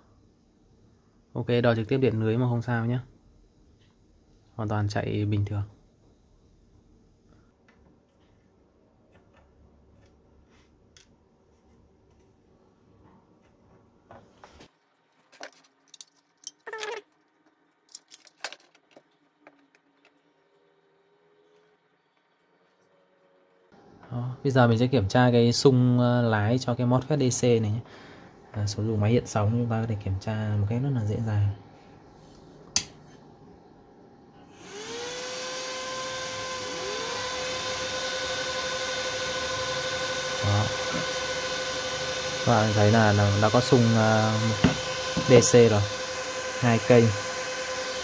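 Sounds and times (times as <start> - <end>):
metal tools clicking and clinking: 15.3 - 16.8, 17.9 - 19.0
cooling fan whirring: 19.9 - 48.0
second fan whirring: 34.5 - 48.0.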